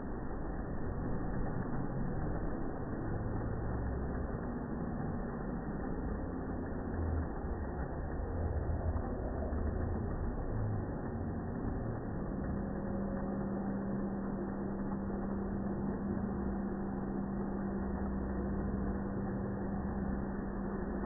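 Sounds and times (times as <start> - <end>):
steady low tone: 0.0 - 21.0.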